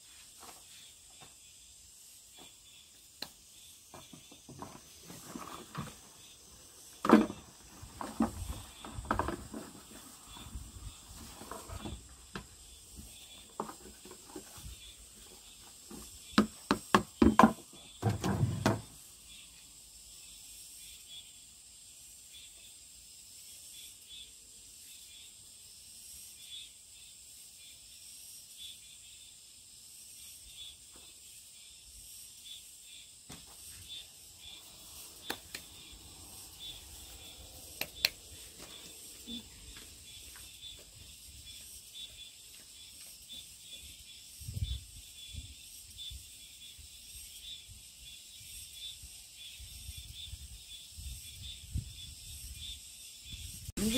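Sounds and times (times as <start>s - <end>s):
faint high hiss: 18.8s - 53.9s.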